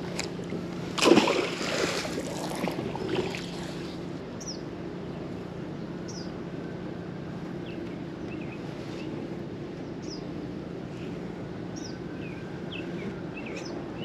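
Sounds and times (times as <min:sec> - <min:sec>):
steady low hum: 0:00.0 - 0:14.0
magnet splashing into water: 0:01.0 - 0:03.6.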